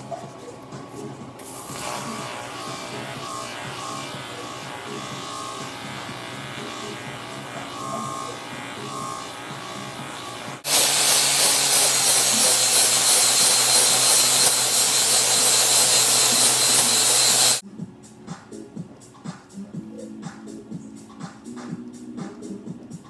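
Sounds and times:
background music: 0:00.0 - 0:10.7, 0:17.6 - 0:23.0
angle grinder grinding metal: 0:01.4 - 0:17.6.

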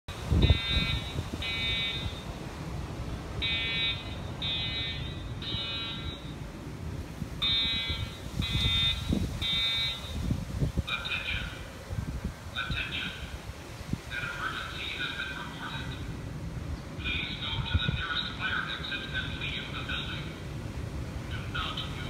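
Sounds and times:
fire alarm beeping: 0:00.4 - 0:02.3, 0:03.4 - 0:06.4, 0:07.4 - 0:10.2.

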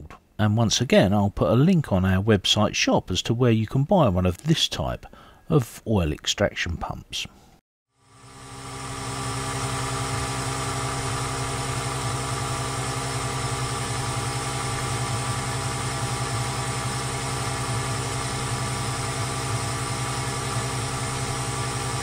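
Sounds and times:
electric pump humming: 0:08.0 - 0:22.0.

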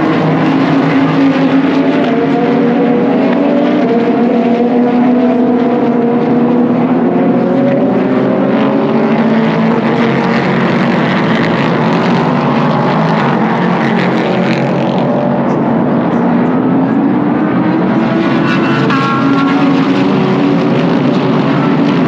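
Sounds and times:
race car engines passing: 0:00.0 - 0:22.0.

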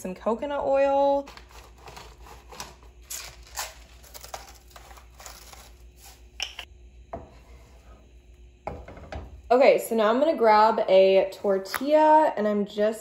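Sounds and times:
food crackling in a frying pan: 0:01.2 - 0:06.2.

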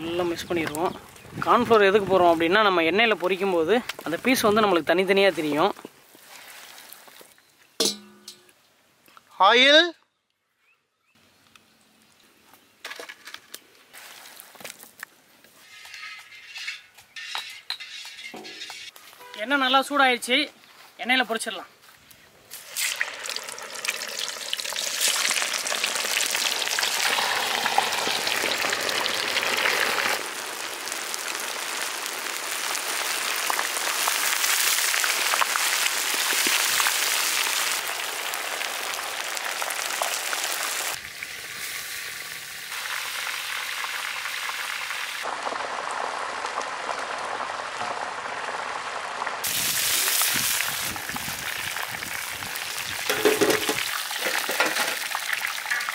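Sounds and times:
fish deep-frying in hot oil: 0:22.5 - 0:55.9.

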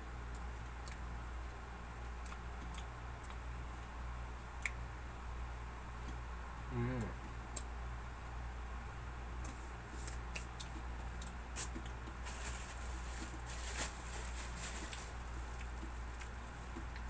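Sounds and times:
steady low hum: 0:00.0 - 0:17.0
plastic bag crinkling: 0:12.2 - 0:16.2.

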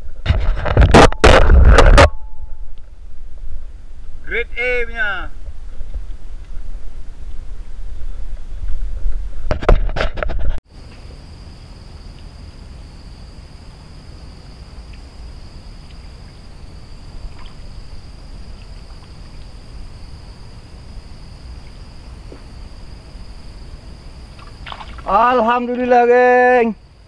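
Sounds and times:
insects droning: 0:00.0 - 0:09.4, 0:10.7 - 0:27.0
faint ticks: 0:12.1 - 0:12.4, 0:14.9 - 0:15.1.

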